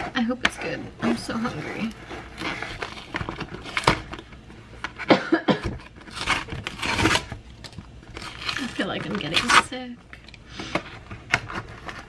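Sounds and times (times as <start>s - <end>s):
cardboard box being torn open: 5.7s - 7.4s, 8.1s - 9.7s.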